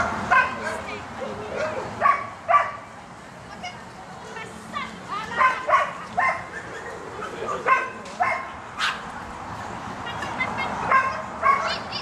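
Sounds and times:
dog barking excitedly: 0.0s - 0.8s, 1.6s - 2.8s, 5.3s - 9.0s, 10.8s - 11.9s.

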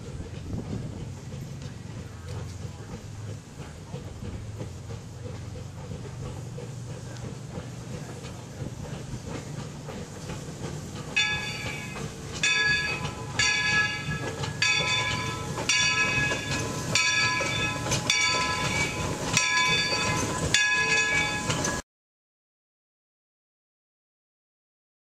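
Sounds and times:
train rolling slowly: 0.0s - 21.8s
steam locomotive bell ringing: 10.9s - 21.8s.

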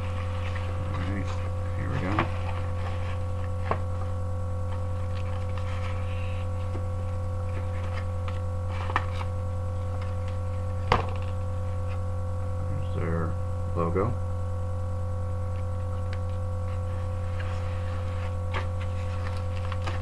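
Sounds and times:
paper rustling: 0.0s - 4.1s, 4.7s - 9.3s, 16.0s - 20.0s
electrical hum with higher tones: 0.0s - 20.0s.

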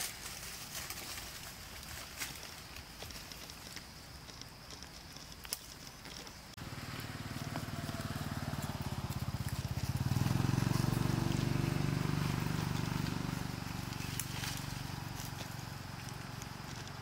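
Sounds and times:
small engine running: 6.6s - 17.0s.

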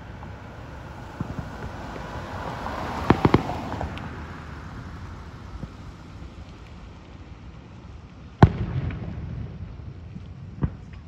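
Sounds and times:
firework bangs: 0.0s - 5.9s, 8.4s - 11.0s
firework crackle and pops: 0.0s - 11.0s.

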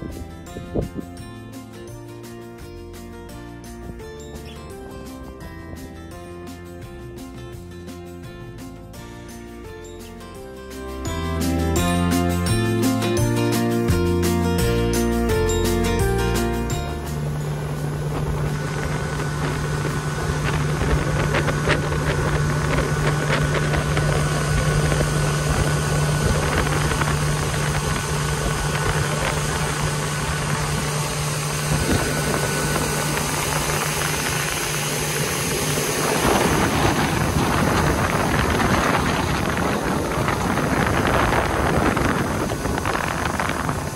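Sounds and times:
rushing wind: 0.0s - 1.3s, 16.7s - 43.9s
outboard motor running: 0.0s - 43.9s.

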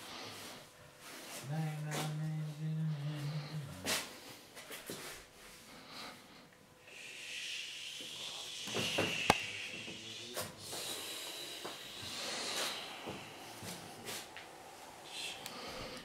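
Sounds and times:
person hissing breathily: 5.8s - 16.0s.

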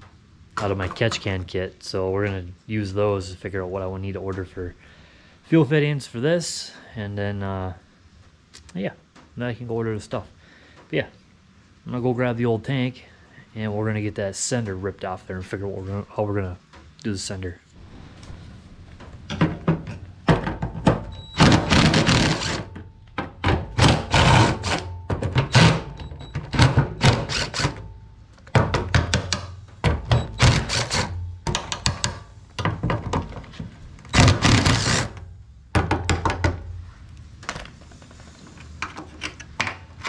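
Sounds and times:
impact driver hammering: 20.3s - 27.9s, 28.5s - 32.9s.

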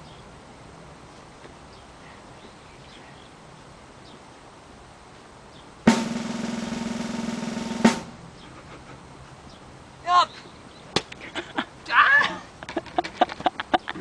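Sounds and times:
drum roll: 5.9s - 8.2s.

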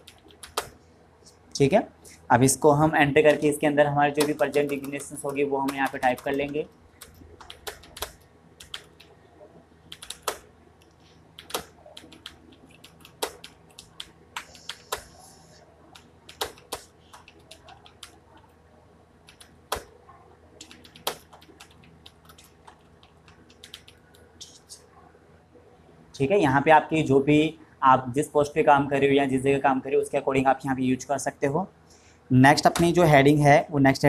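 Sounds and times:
computer keyboard typing: 0.0s - 0.8s, 4.1s - 9.1s, 9.9s - 15.2s, 15.9s - 18.5s, 19.2s - 19.9s, 20.6s - 24.6s, 32.6s - 33.0s.

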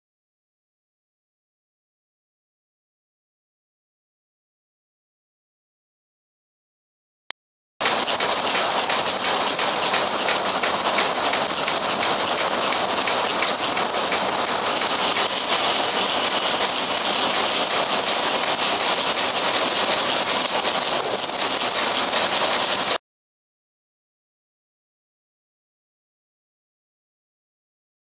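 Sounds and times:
steam sawmill machinery hissing: 7.8s - 23.0s.

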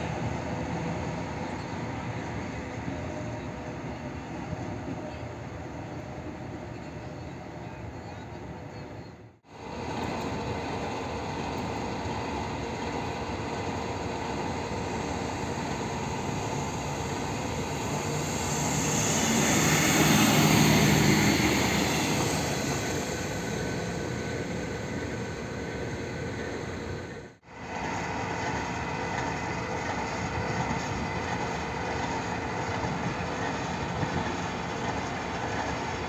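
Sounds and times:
diesel railcar passing: 0.0s - 36.0s
diesel locomotive idling: 8.7s - 36.0s.

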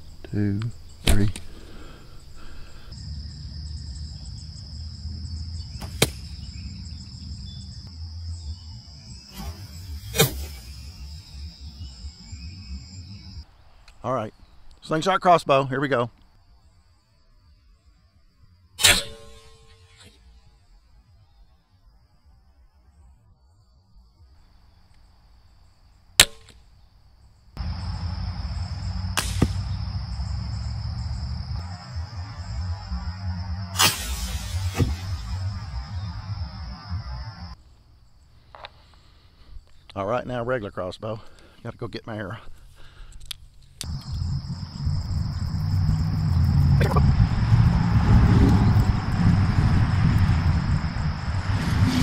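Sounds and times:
high insect buzz: 0.0s - 13.5s, 16.4s - 39.8s, 43.8s - 52.0s
crossbow string snap: 5.8s - 6.3s, 29.2s - 29.7s
arrow hitting target: 5.8s - 6.4s, 9.3s - 11.0s, 18.8s - 20.3s, 26.2s - 26.6s, 29.2s - 29.9s, 33.7s - 35.6s
short crack: 5.8s - 6.4s, 29.2s - 29.8s
bow shot snap: 5.8s - 6.5s, 9.3s - 11.0s, 18.8s - 20.2s, 26.2s - 26.7s, 29.0s - 30.0s, 33.7s - 35.6s
low rumble: 27.6s - 37.6s, 43.9s - 52.0s.

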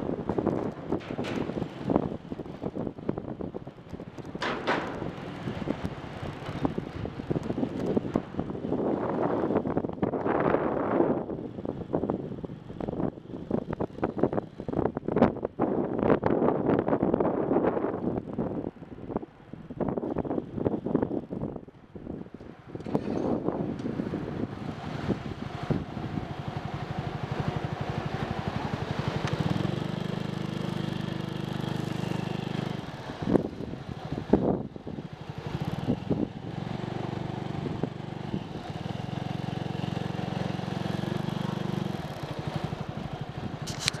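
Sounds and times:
motorcycle engine running: 22.9s - 44.0s.

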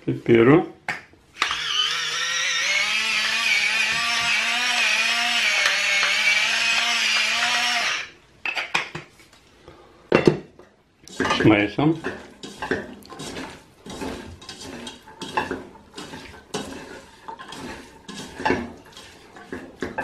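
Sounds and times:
electric pepper mill grinding: 1.4s - 8.2s.

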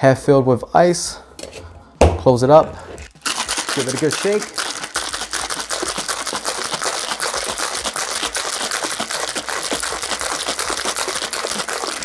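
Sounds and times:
ice rattling in cocktail shaker: 3.0s - 12.0s.

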